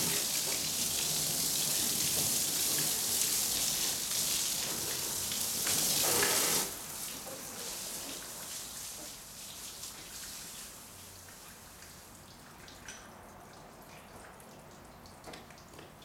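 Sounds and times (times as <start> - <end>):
garden hose spray hissing: 5.3 - 7.0.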